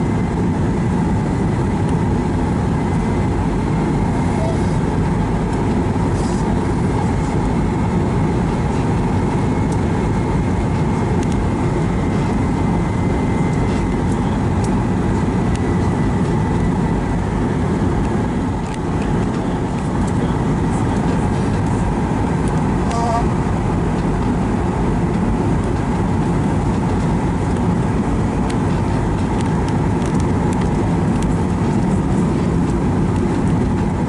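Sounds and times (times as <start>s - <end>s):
faint high whine: 0.0s - 26.2s
jet engine rumble: 0.0s - 34.0s.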